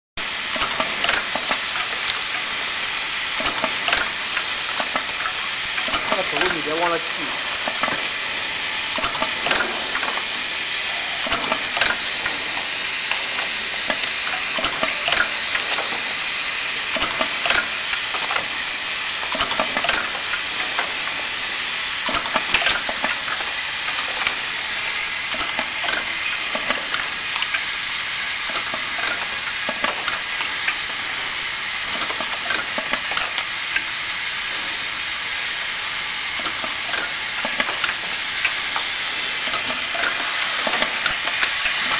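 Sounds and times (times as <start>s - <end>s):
labeling machine clicks and taps: 0.5s - 2.6s, 3.4s - 7.0s, 9.0s - 10.3s, 11.2s - 16.1s, 16.9s - 18.5s, 19.2s - 21.2s, 22.0s - 24.4s, 25.3s - 27.7s, 28.5s - 31.0s, 31.9s - 33.9s, 36.4s - 41.9s.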